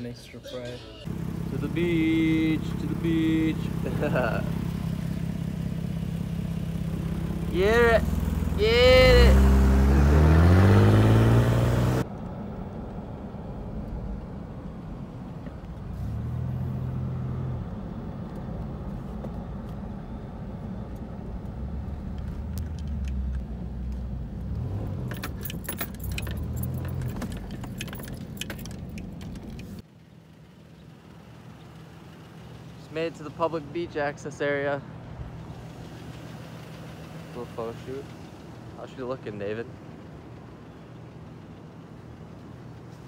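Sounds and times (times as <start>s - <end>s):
engine and road noise in car cabin: 0.0s - 43.0s
rattling clicks over bumps: 22.1s - 29.8s
quiet outdoor hum: 25.7s - 43.0s.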